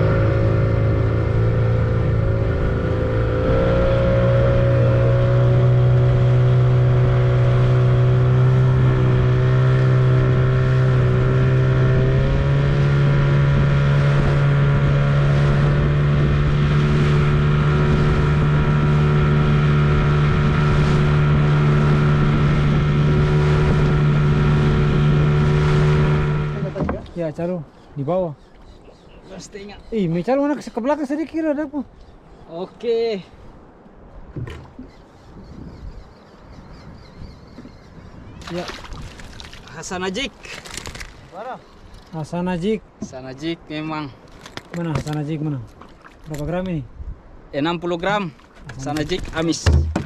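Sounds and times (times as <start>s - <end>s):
outboard motor running: 0.0s - 27.2s, 48.4s - 50.0s.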